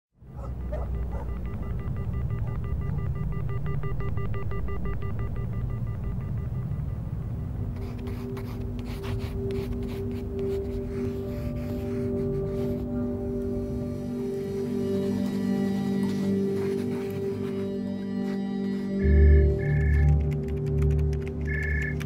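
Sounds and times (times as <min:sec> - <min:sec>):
low rumbling drone: 0:00.3 - 0:16.6
scattered clicks: 0:19.2 - 0:22.0.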